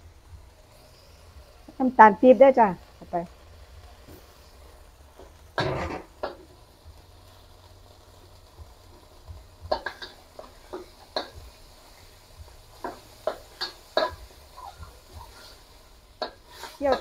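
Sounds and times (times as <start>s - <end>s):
metal spatula scraping a wok: 9.6s - 17.0s.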